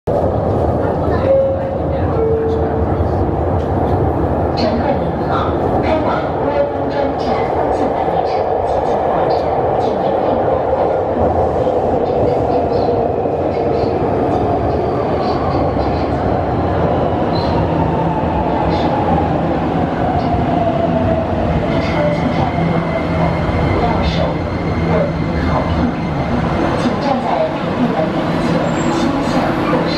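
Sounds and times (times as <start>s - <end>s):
train wheels rumbling on rail: 0.1s - 29.9s.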